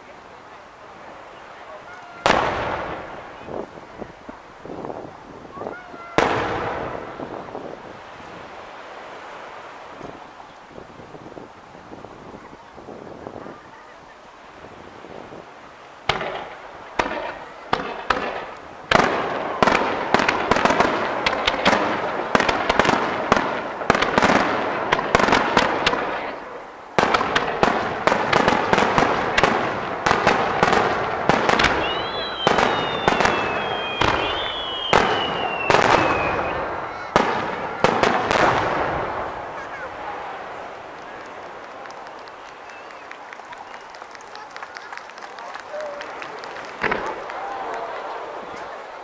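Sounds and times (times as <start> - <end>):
firework shells bursting: 16.0 - 26.2, 27.0 - 39.8, 46.2 - 47.4
high falling whistle: 31.8 - 36.7.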